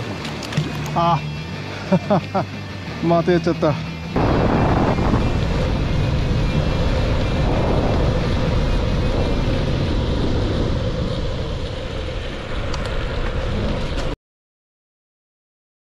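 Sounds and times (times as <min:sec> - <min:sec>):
tyres humming on asphalt: 0:00.0 - 0:14.2
wind buffeting microphone: 0:04.2 - 0:14.2.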